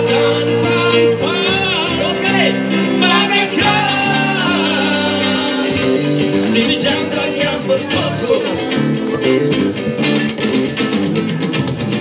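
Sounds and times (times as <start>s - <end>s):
person singing: 0.0s - 9.6s
bass line: 0.0s - 12.0s
strummed acoustic guitar: 0.0s - 12.0s.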